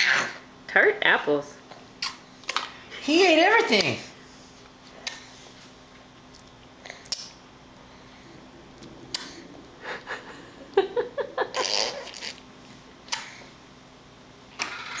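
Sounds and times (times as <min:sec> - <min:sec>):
baby smacking lips: 0:04.9 - 0:05.3, 0:06.0 - 0:07.4, 0:13.1 - 0:13.4.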